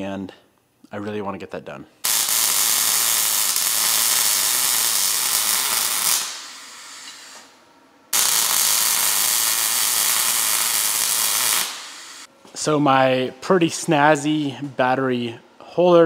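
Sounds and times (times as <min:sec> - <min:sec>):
welder arc hissing: 0:02.0 - 0:12.3.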